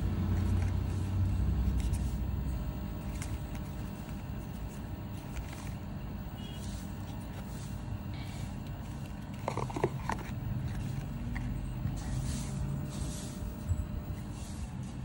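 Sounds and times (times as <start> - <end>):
low background rumble: 0.0 - 15.0
paper rustling: 0.0 - 15.0.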